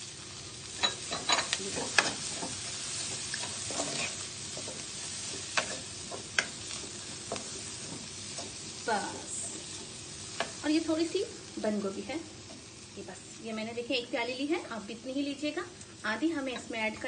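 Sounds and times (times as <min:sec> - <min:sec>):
food sizzling in a pan: 0:00.0 - 0:17.0
spatula scraping and knocking pan: 0:00.7 - 0:08.7.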